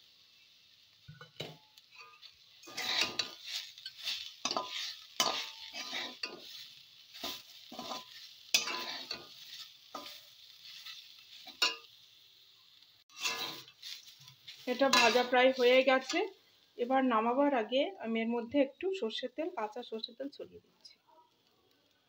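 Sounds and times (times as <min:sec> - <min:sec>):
food sizzling: 0:00.0 - 0:22.0
metal spatula scraping a pan: 0:01.1 - 0:12.0, 0:13.1 - 0:16.4.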